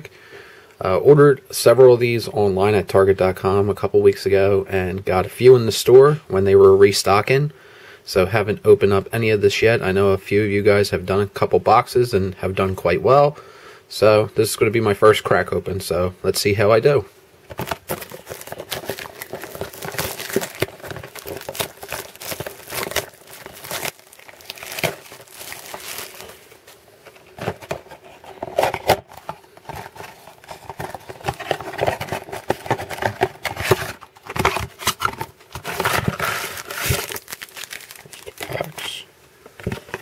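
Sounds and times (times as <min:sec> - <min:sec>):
cardboard box crinkling and tapping: 0:17.5 - 0:26.3, 0:27.1 - 0:38.6.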